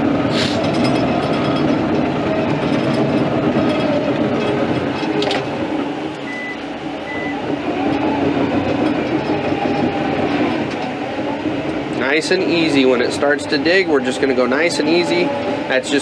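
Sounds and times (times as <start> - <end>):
diesel engine running: 0.0 - 16.0
short high beeps: 6.3 - 7.4.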